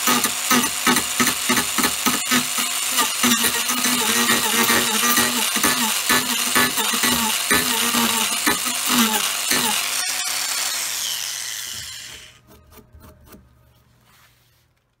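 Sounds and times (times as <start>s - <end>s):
angle grinder cutting wood: 0.0s - 12.7s
grinder whine spinning down: 9.2s - 12.4s.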